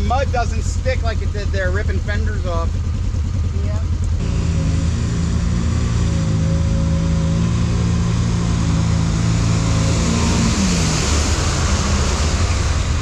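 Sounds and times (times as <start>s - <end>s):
utility vehicle engine under load: 0.0s - 13.0s
mud and water splashing: 7.4s - 13.0s.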